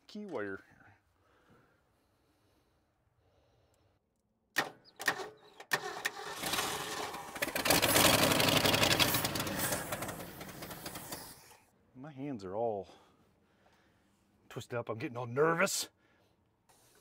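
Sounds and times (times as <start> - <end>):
vee eight engine running roughly: 5.9 - 11.4.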